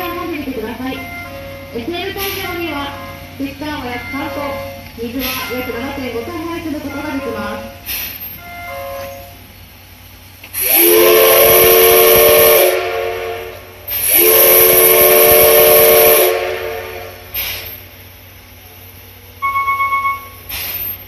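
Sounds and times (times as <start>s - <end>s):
steam hissing: 0.0s - 21.0s
steam whistle blasts: 10.6s - 17.8s, 19.4s - 20.9s.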